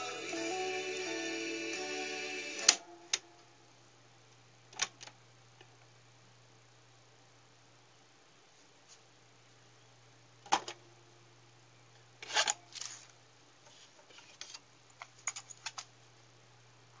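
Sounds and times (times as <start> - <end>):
faint steady hum: 0.0 - 17.0
cassette clatter: 10.5 - 10.8.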